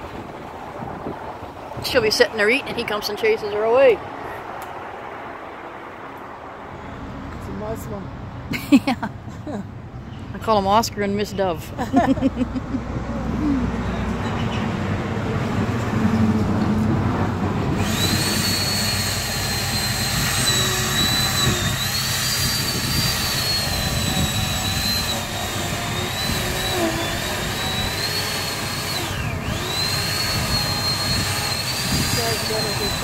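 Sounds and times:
chainsaw cutting wood: 17.8s - 33.0s.

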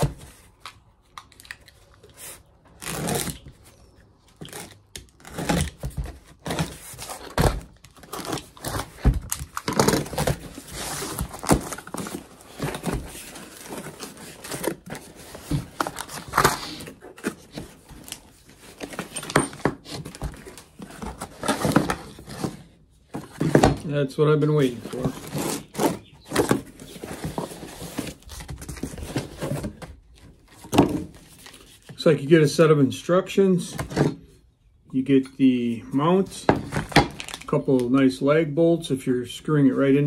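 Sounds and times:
cardboard tearing and rustling: 2.1s - 31.9s, 36.6s - 37.5s.

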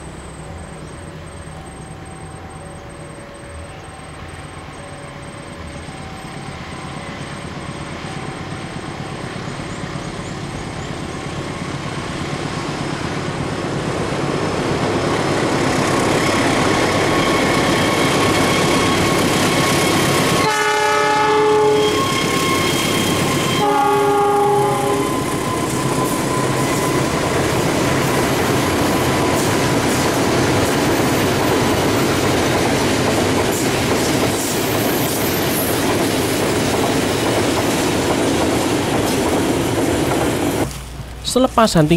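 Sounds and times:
diesel train passing: 0.0s - 41.9s
train horn blasts: 20.2s - 27.2s.

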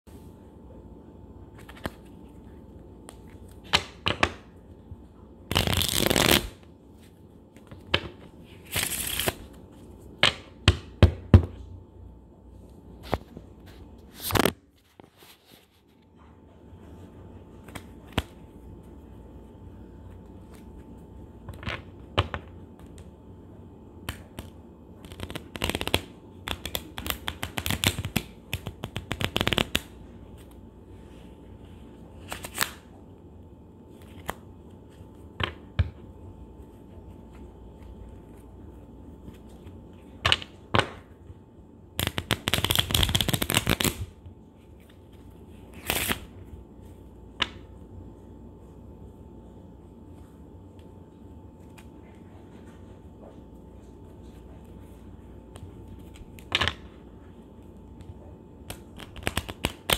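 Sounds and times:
playing cards riffle shuffling: 1.5s - 4.4s, 5.5s - 10.0s, 14.1s - 15.8s, 24.1s - 32.9s, 33.9s - 35.6s, 42.0s - 47.6s, 58.7s - 59.9s.

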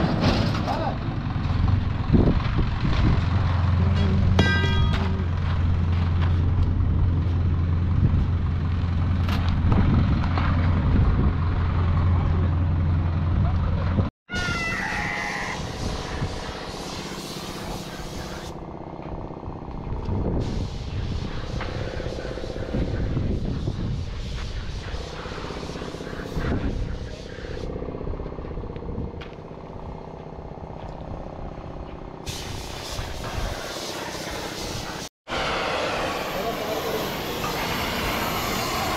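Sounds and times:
engine running steadily: 0.0s - 14.1s, 15.5s - 38.9s
low mechanical rumble: 0.0s - 14.1s, 15.2s - 32.8s
loud hiss: 14.8s - 18.6s, 20.4s - 27.7s, 32.3s - 38.9s.

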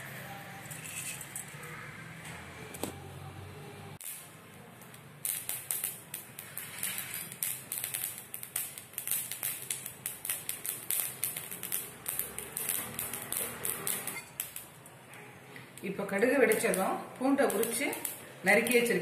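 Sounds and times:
seeds crackling in hot oil: 4.0s - 15.0s, 15.6s - 19.0s.

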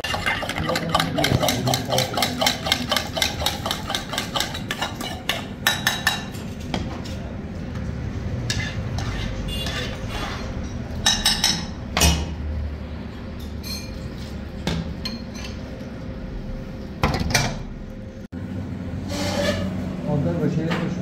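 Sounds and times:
metal ladle clinking on pot: 0.0s - 6.4s.

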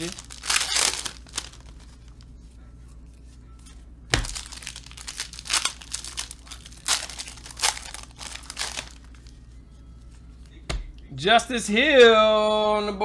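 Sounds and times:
foil wrapper ripping and crinkling: 0.0s - 2.2s, 4.2s - 9.4s.

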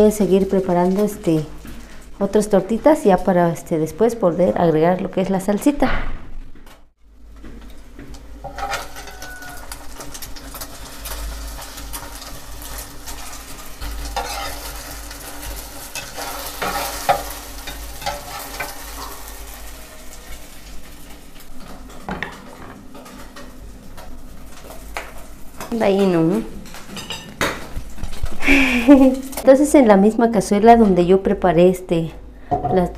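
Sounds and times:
omelette sizzling in hot oil: 7.7s - 22.1s
metal spatula scraping pot: 8.4s - 19.6s.

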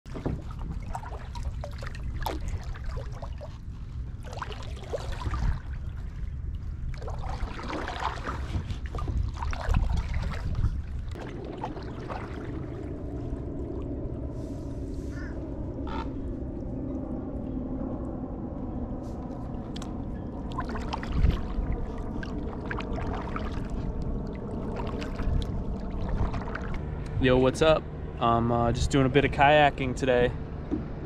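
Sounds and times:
paddle splashing in water: 0.1s - 6.2s, 6.9s - 13.4s, 20.5s - 27.0s
low rumble: 0.1s - 31.0s
steady low hum: 0.1s - 31.0s.

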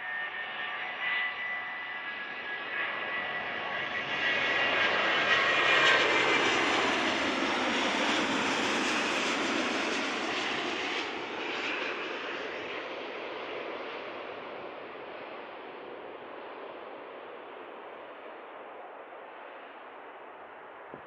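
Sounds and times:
jet engines passing by: 0.0s - 21.0s.

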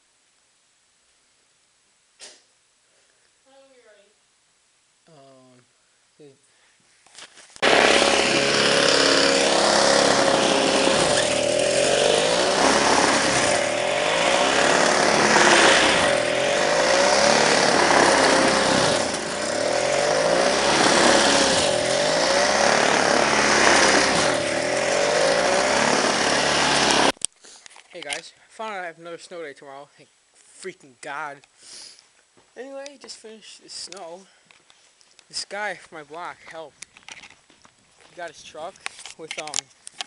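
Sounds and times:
snowblower engine running hard: 7.6s - 27.1s.

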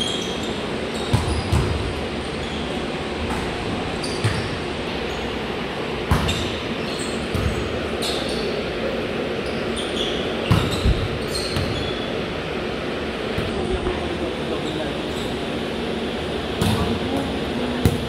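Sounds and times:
sneakers squeaking on floor: 0.0s - 5.4s, 6.1s - 8.7s, 9.3s - 12.2s, 14.5s - 15.5s
large hall background noise: 0.0s - 18.0s.

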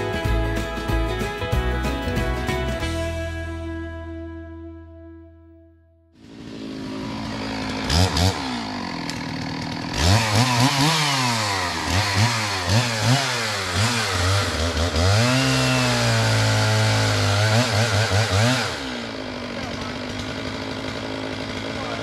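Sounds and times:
chainsaw revving: 6.1s - 22.0s.

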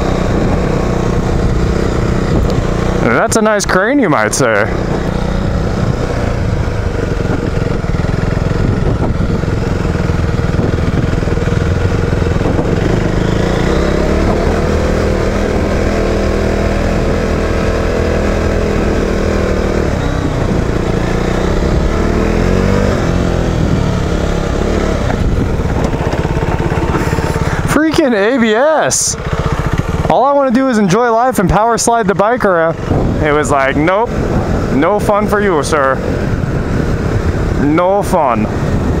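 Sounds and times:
motorcycle engine revving: 0.0s - 39.0s.

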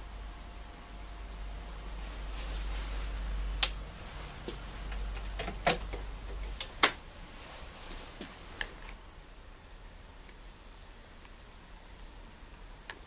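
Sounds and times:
low hum: 0.0s - 12.9s.

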